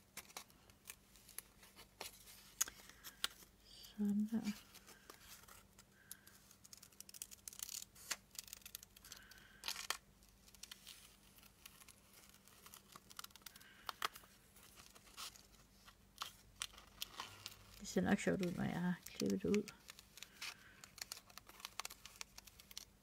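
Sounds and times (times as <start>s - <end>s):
paper rustling: 4.4s - 23.0s
scissors snipping paper: 19.1s - 22.9s.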